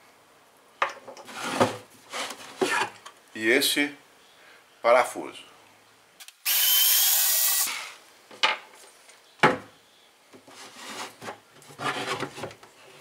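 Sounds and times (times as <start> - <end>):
plastic scraping on wood: 1.2 - 3.0, 10.4 - 13.0
cordless screwdriver whirring: 6.4 - 7.9.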